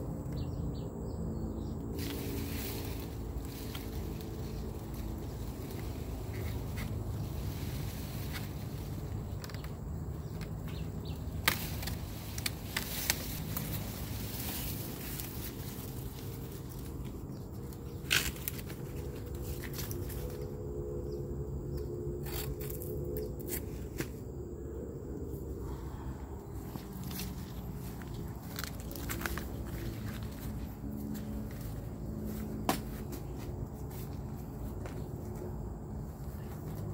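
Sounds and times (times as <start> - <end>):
steady low hum: 0.0 - 36.9
cane stalks cracking and snapping: 1.9 - 20.6, 21.8 - 24.1, 26.7 - 31.8.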